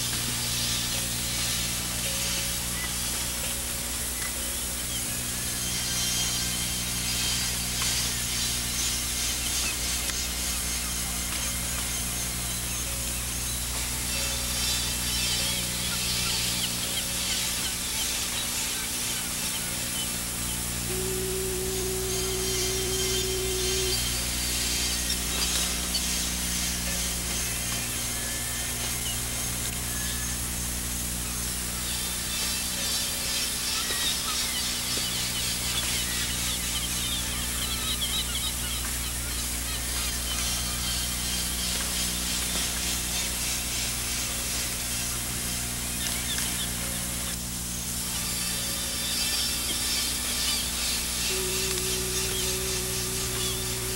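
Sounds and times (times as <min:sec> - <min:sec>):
low electrical hum: 0:00.0 - 0:53.9
tape hiss: 0:00.0 - 0:53.9
faint high chirps: 0:09.6 - 0:30.5, 0:48.3 - 0:53.9.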